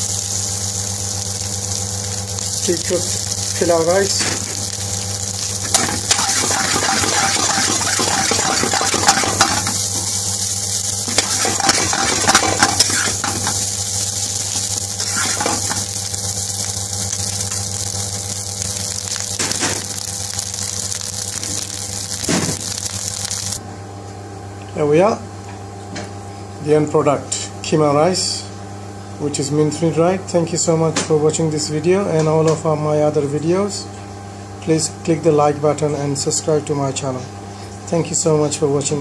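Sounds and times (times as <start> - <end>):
food sizzling in frying pan: 0.0 - 23.6.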